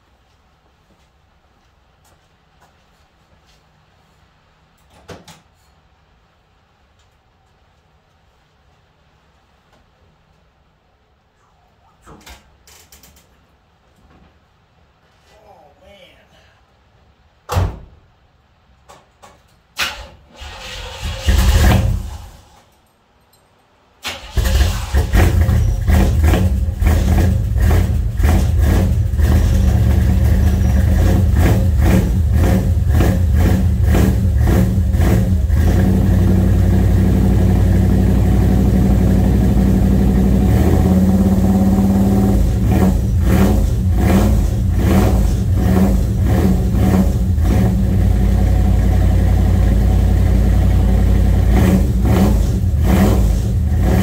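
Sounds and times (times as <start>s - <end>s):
car engine running: 24.5s - 54.0s.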